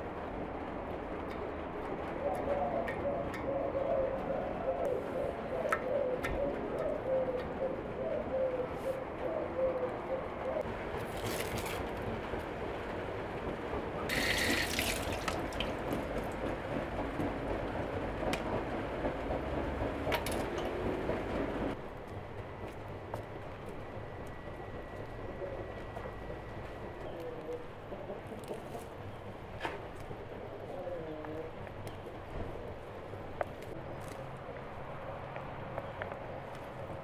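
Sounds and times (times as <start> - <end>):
dove cooing: 2.2 - 10.6, 25.3 - 28.8, 30.6 - 31.6
water running from tap: 14.1 - 15.9.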